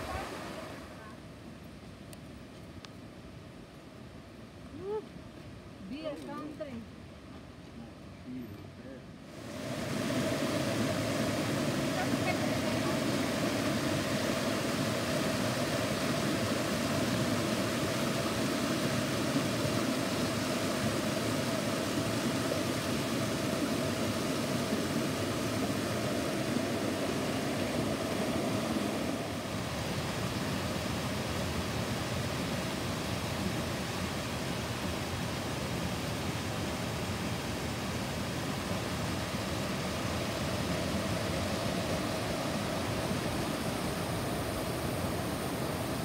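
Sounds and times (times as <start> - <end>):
creek rushing over boulders: 9.3 - 46.0.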